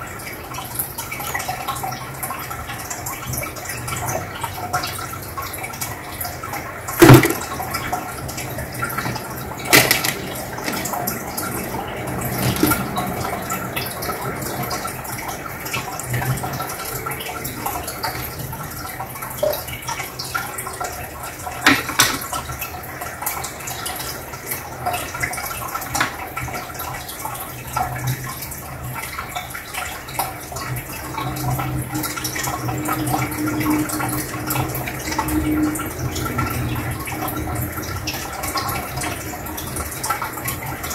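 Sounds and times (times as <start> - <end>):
aquarium filter bubbling: 0.0 - 40.9
water pops and splashes: 7.0 - 11.2.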